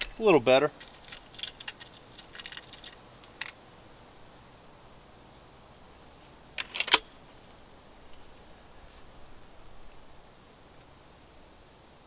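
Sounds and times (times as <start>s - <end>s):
air rifle metallic clicks: 0.0s - 3.6s, 6.6s - 7.1s.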